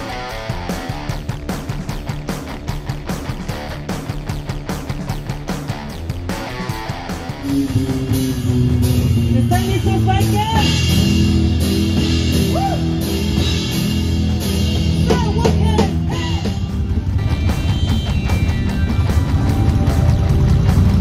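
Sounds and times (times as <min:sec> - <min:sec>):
drum kit: 0:00.0 - 0:21.0
electric bass long low notes: 0:00.0 - 0:21.0
electric guitar: 0:00.0 - 0:21.0.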